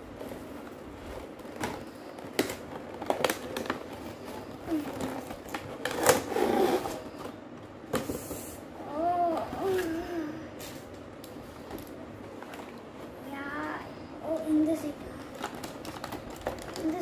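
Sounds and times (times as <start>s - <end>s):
packaging rustling: 0.0s - 8.6s, 15.2s - 17.0s.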